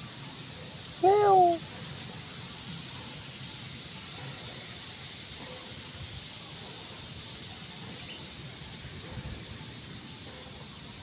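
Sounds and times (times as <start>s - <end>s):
steady outdoor hiss: 0.0s - 11.0s.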